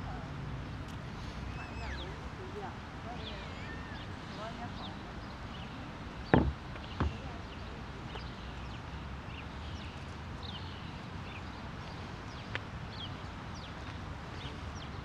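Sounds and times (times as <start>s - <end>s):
outdoor background noise: 0.0s - 15.0s
small birds chirping: 0.6s - 15.0s
sharp knock: 6.3s - 7.2s.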